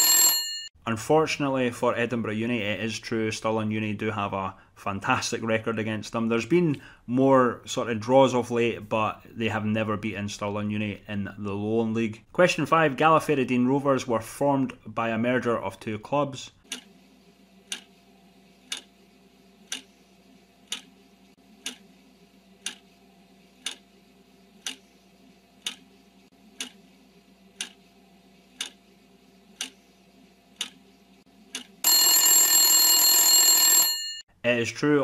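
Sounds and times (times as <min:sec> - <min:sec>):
alarm bell ringing: 0:00.0 - 0:00.7, 0:31.8 - 0:34.2
clock ticking: 0:16.7 - 0:16.9, 0:17.7 - 0:17.9, 0:18.7 - 0:18.9, 0:19.6 - 0:19.9, 0:20.6 - 0:20.9, 0:21.6 - 0:21.8, 0:22.6 - 0:22.8, 0:23.6 - 0:23.8, 0:24.6 - 0:24.8, 0:25.6 - 0:25.9, 0:26.6 - 0:26.8, 0:27.6 - 0:27.8, 0:28.6 - 0:28.8, 0:29.6 - 0:29.8, 0:30.6 - 0:30.8.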